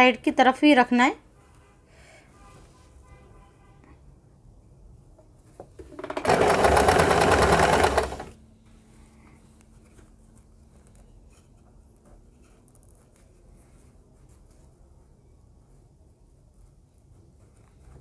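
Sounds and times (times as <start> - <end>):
sewing machine stitching: 5.8 - 8.4.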